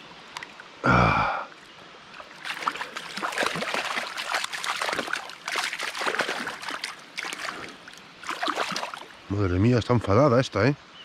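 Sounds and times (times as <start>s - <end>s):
fish splashing in water: 2.2s - 9.2s.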